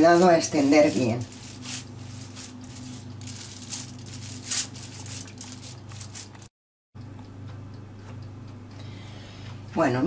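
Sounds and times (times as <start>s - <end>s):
foil rustling: 0.0s - 6.5s
steady low hum: 0.0s - 9.8s.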